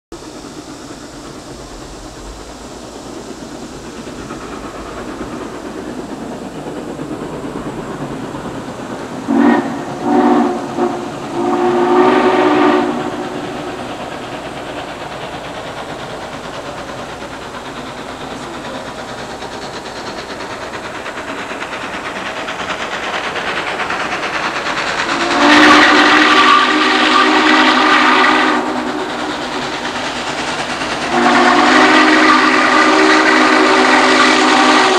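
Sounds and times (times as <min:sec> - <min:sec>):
approaching locomotive rushing: 0:00.1 - 0:34.9
steam locomotive whistle: 0:09.3 - 0:13.9, 0:25.0 - 0:29.8, 0:30.9 - 0:34.9.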